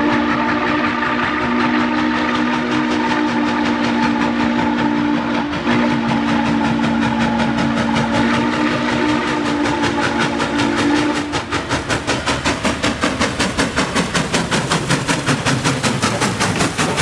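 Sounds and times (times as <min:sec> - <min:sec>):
steam whistle chord: 0:00.0 - 0:11.5
steam locomotive chuffing: 0:00.0 - 0:17.0.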